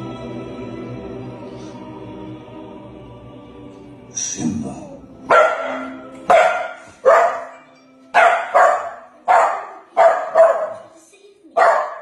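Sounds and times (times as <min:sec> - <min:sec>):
dog barking: 0:05.3 - 0:07.6, 0:08.2 - 0:11.0, 0:11.6 - 0:12.0.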